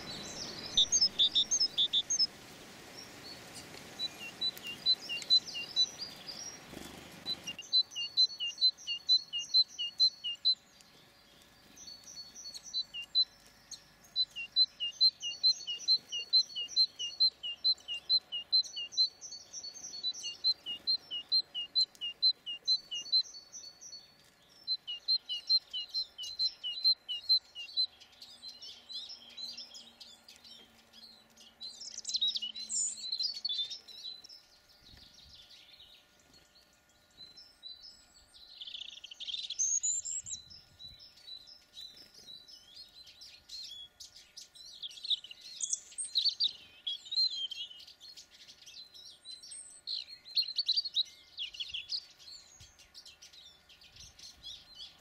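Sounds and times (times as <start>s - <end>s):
high twittering chirps: 0.0s - 2.3s, 2.9s - 30.4s
songbirds singing: 0.0s - 55.0s.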